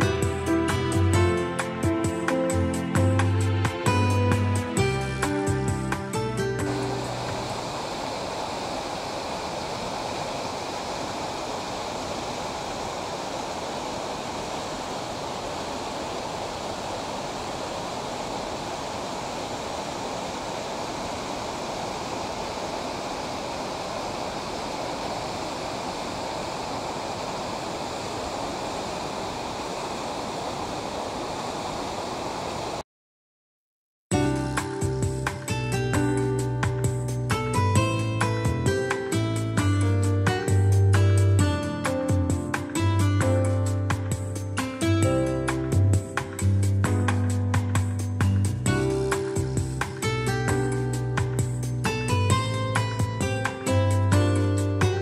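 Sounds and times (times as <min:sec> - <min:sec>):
waterfall rushing: 0:02.9 - 0:32.8, 0:47.5 - 0:55.0.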